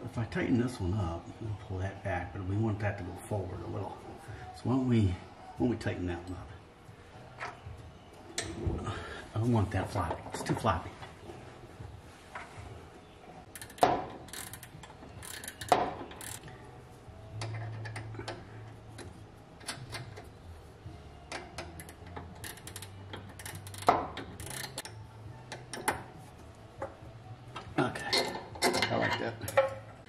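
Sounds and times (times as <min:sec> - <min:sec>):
wrenches clinking on nuts: 0:13.5 - 0:16.5, 0:21.3 - 0:26.1, 0:27.9 - 0:30.0.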